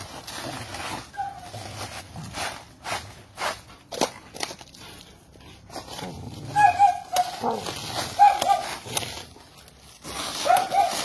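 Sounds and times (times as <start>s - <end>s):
rustles and clicks: 0.0s - 11.0s
dog whining: 1.0s - 1.6s, 6.4s - 8.9s.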